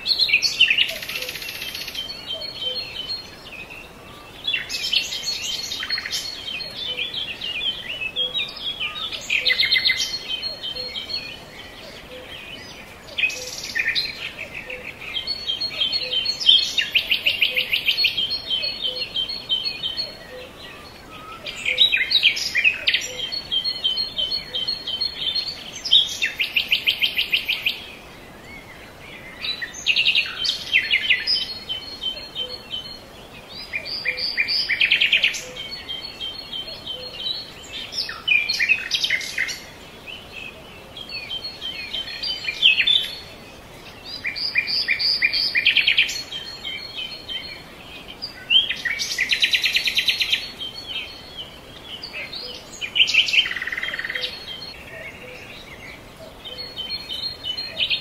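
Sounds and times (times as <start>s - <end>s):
birds chirping and trilling: 0.0s - 58.0s.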